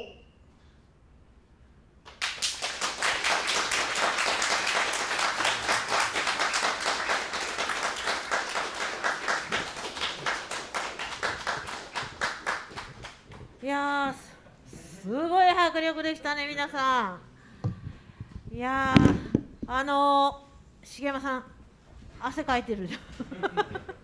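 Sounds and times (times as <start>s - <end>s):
audience applauding: 2.1s - 13.4s.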